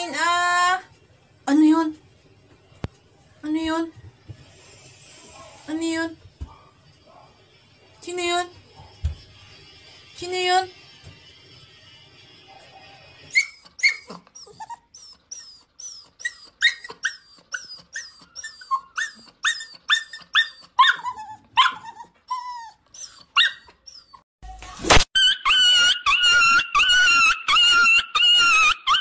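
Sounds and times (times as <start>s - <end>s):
dog whining and yelping: 13.3s - 24.3s, 25.2s - 29.0s.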